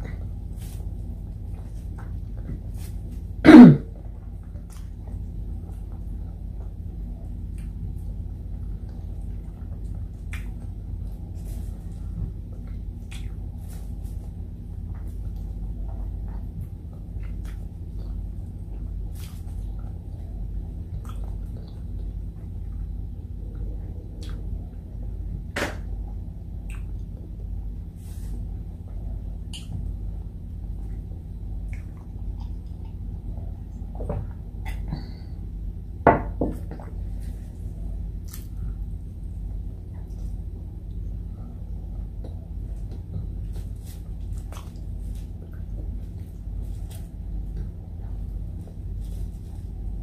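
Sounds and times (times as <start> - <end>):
steady low hum: 0.0 - 50.0
chewing and mouth clicks: 12.5 - 13.5, 31.6 - 33.2, 42.2 - 46.9
person chewing food: 42.0 - 50.0.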